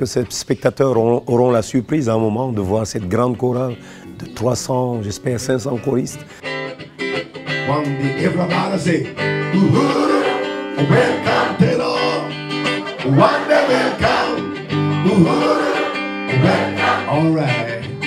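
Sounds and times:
guitar accompaniment: 0.0 - 18.0
choir singing gospel: 9.5 - 17.7.

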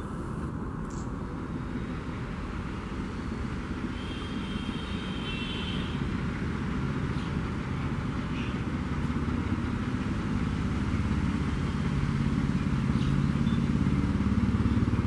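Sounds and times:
diesel locomotive engine chugging: 0.0 - 15.0.

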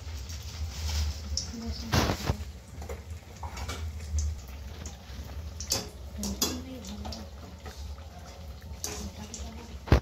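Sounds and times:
food deep-frying in oil: 0.0 - 10.0
metal utensils clinking: 5.6 - 9.6.

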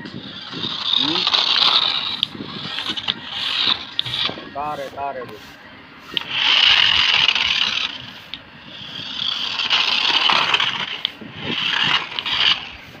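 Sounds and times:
toy car motor and gears buzzing: 0.0 - 5.3, 6.1 - 13.0.

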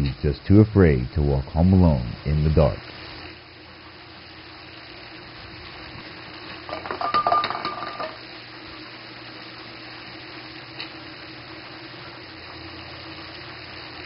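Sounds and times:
metallic clinking and rattling: 6.7 - 8.2.

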